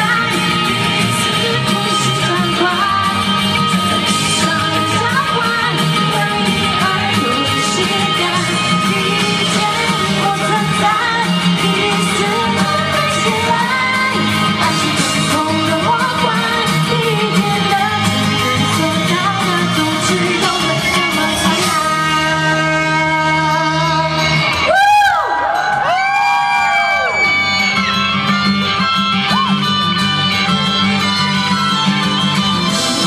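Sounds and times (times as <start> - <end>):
woman singing pop: 0.0 - 24.7
amplified band with guitar and bass: 0.0 - 33.0.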